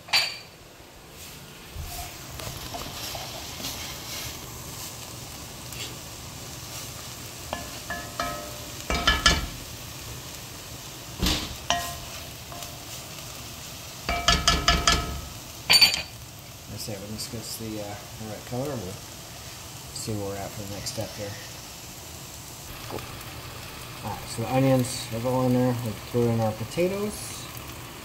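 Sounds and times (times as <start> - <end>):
onions sizzling in a pan: 0.0 - 28.0
utensil clinking against pan: 7.5 - 9.5, 14.1 - 16.1.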